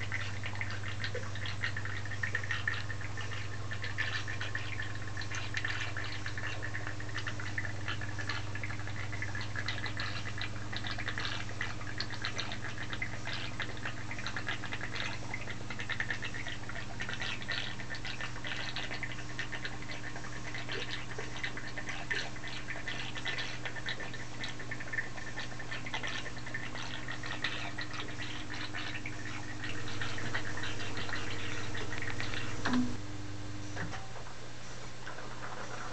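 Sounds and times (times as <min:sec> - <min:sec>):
liquid stream trickling and splashing: 0:00.0 - 0:33.0
pump humming: 0:00.0 - 0:35.9.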